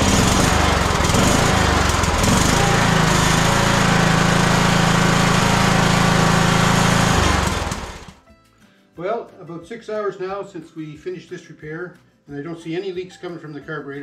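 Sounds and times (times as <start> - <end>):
lawn tractor engine running: 0.0 - 8.2.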